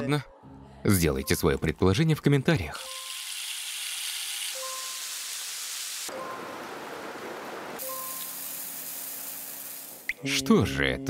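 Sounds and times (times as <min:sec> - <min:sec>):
meat sizzling on a grill: 0:02.8 - 0:06.1, 0:07.8 - 0:10.1
rain-like hissing: 0:03.0 - 0:10.1.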